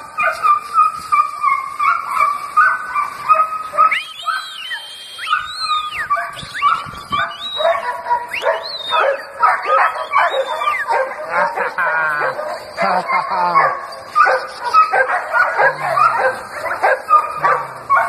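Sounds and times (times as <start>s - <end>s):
dog yipping and barking: 0.1s - 18.0s
dog whining: 5.3s - 18.0s.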